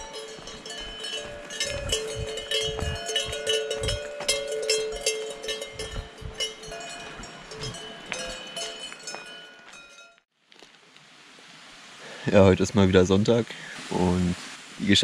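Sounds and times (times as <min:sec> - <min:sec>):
cowbells ringing and clanking: 0:00.0 - 0:10.2.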